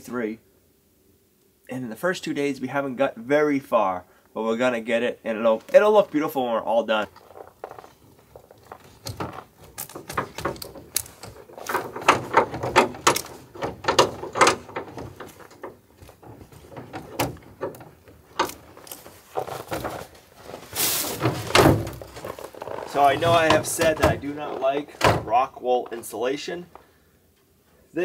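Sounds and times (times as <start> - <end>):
strap webbing rustling: 5.4 - 26.9.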